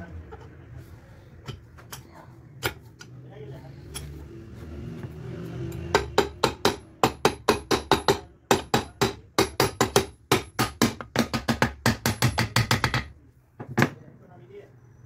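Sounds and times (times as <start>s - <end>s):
hammer striking metal cover: 5.9s - 13.1s.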